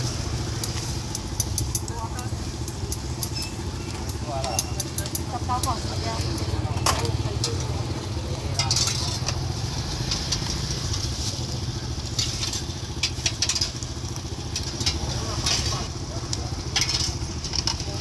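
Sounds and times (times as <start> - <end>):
engine idling: 0.0 - 18.0
metal tongs clicking on grill: 0.6 - 7.7.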